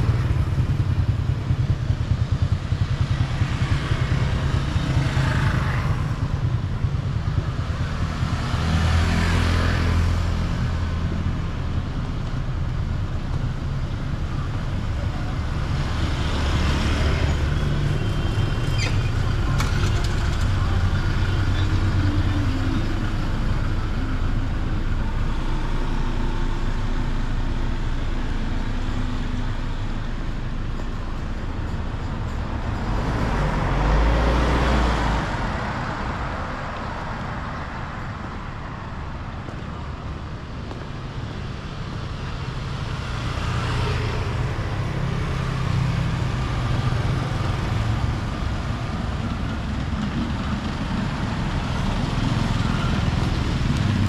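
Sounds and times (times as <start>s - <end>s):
street traffic hum: 0.0s - 54.0s.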